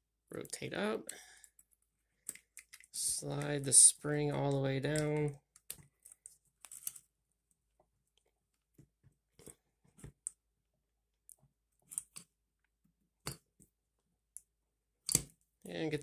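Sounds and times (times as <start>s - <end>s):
clicks of small metal parts: 2.2s - 2.9s.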